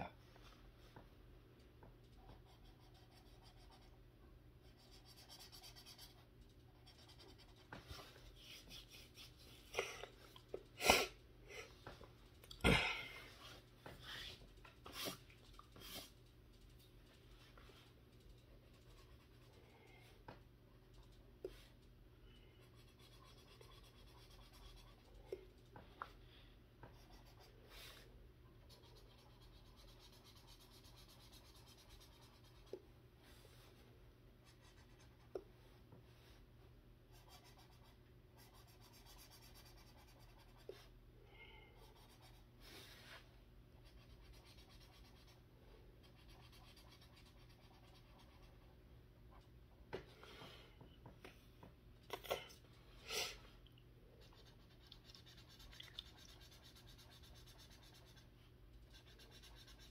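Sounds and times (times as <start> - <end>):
marker scratching on paper: 4.6 - 9.7, 22.6 - 25.1, 26.8 - 28.0, 28.7 - 32.8, 43.8 - 45.4, 46.0 - 48.7, 54.2 - 59.9.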